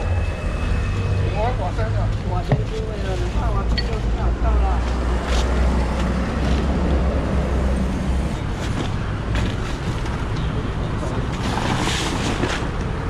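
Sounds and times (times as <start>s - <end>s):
road traffic rumble: 0.0s - 13.0s
people talking: 1.0s - 5.0s.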